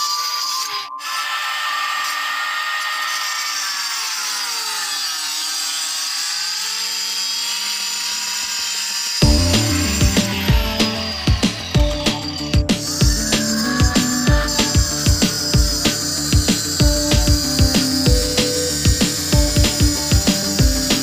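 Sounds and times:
electric stone cutter cutting: 0:00.0 - 0:21.0
music with heavy bass beat: 0:09.2 - 0:21.0.

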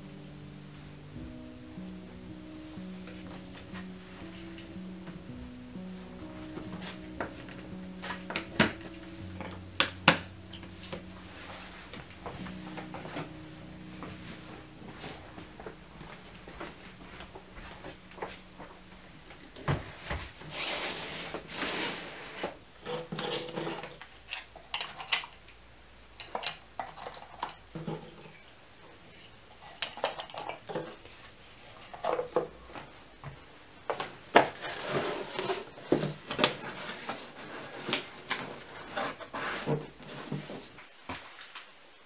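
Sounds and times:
ornaments clinking and knocking: 0:22.8 - 0:31.0
cardboard box rustling: 0:34.5 - 0:40.9.

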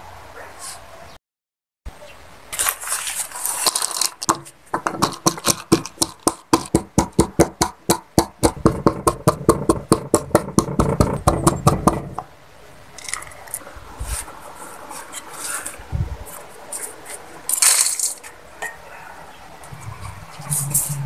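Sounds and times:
pestle pounding peanuts in mortar: 0:04.3 - 0:12.3.

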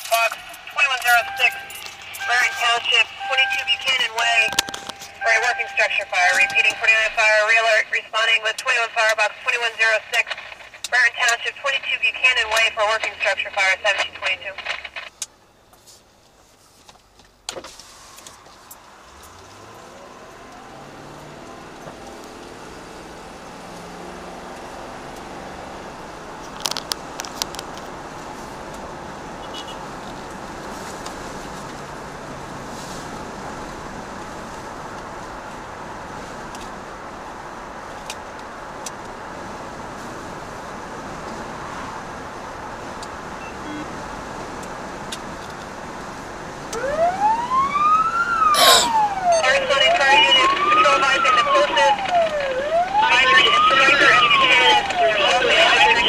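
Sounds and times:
emergency siren wailing: 0:00.0 - 0:14.5, 0:18.0 - 0:26.4, 0:46.6 - 0:56.0
road noise: 0:00.0 - 0:56.0
vehicle engine accelerating: 0:17.9 - 0:27.2.

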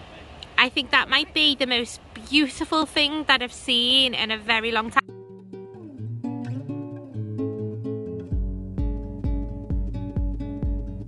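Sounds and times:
strummed acoustic guitar: 0:05.0 - 0:11.0
deep steady beat: 0:05.3 - 0:11.0.

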